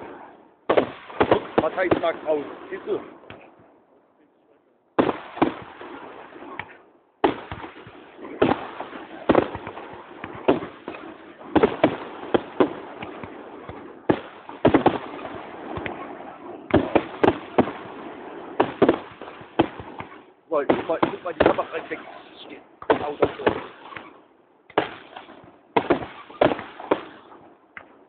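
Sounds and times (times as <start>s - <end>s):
firework bangs: 0.0s - 3.6s, 5.0s - 28.0s
firework crackling: 5.0s - 27.4s.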